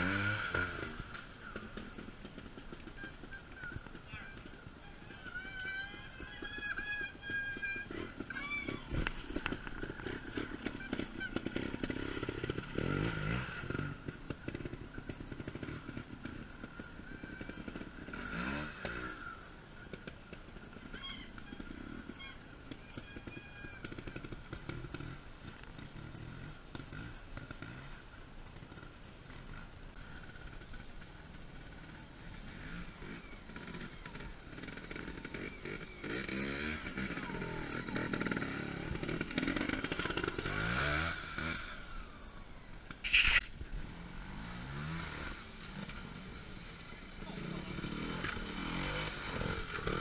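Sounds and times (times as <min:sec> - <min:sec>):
motorcycle engines revving: 0:00.0 - 0:50.0
short high calls: 0:43.0 - 0:43.5.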